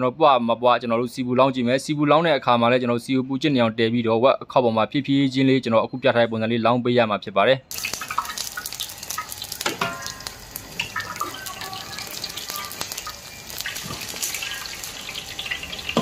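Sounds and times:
crackling pops: 7.7s - 11.2s
hot oil sizzling on pork skin: 7.7s - 16.0s.

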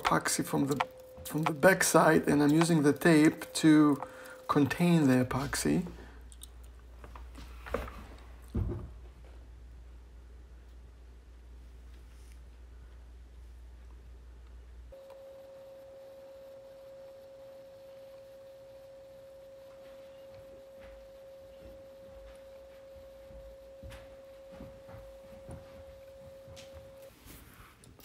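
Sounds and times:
steady pure tone: 0.0s - 6.3s, 14.9s - 27.4s.

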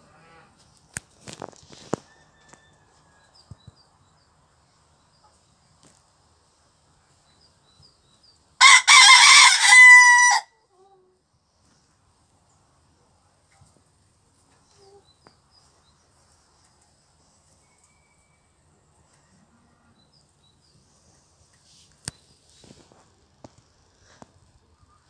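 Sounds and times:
rooster crowing: 2.0s - 3.4s, 8.6s - 10.5s.

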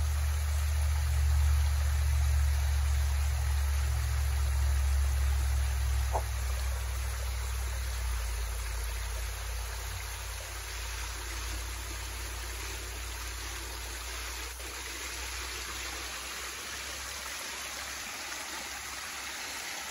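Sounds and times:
water pouring over weir: 0.0s - 19.9s.

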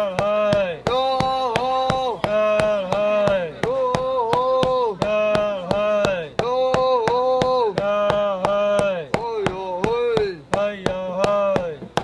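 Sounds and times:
wooden mallet pounding candy: 0.0s - 12.0s.

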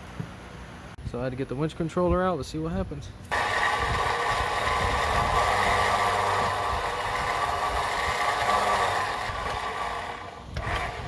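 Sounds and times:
electric winch motor running: 3.3s - 11.0s.

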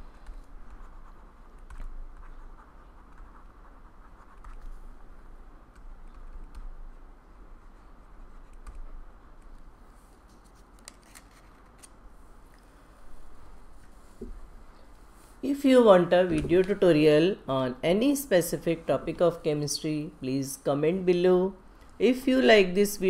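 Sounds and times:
stylus scratching on tablet: 0.0s - 6.8s, 7.5s - 9.2s
low mains hum: 0.0s - 23.0s.

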